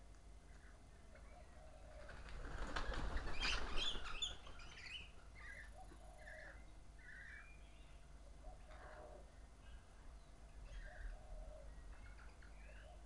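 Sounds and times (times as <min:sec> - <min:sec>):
birds chirping: 0:00.4 - 0:13.0
birds wingbeats taking off: 0:02.0 - 0:04.7.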